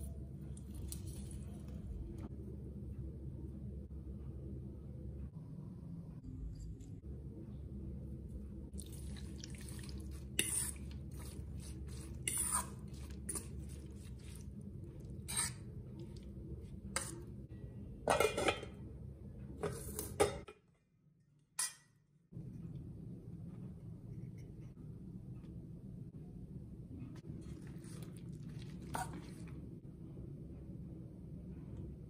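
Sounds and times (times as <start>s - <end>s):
steady low hum: 0.0s - 32.0s
spoon scraping and clinking bowl: 10.4s - 14.4s, 15.2s - 15.7s.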